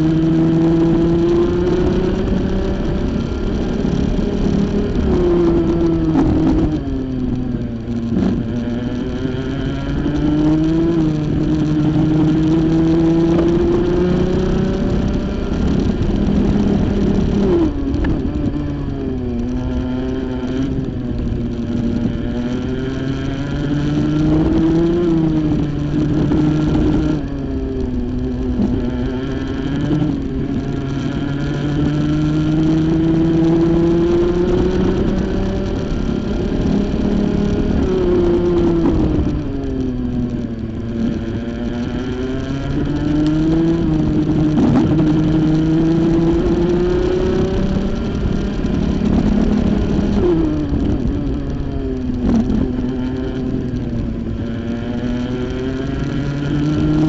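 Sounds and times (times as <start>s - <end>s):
kart engine revving: 0.0s - 57.0s.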